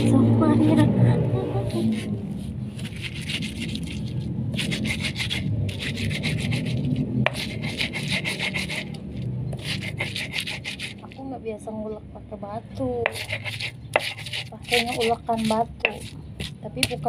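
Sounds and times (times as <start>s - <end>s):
stone grinding on stone: 1.7s - 11.2s, 13.0s - 17.0s.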